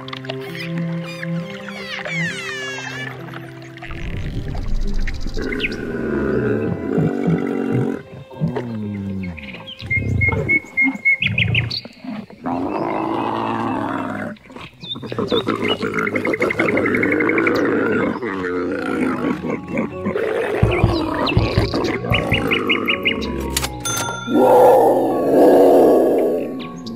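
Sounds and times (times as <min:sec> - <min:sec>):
rough low animal calls: 0:03.8 - 0:08.6, 0:24.3 - 0:26.9.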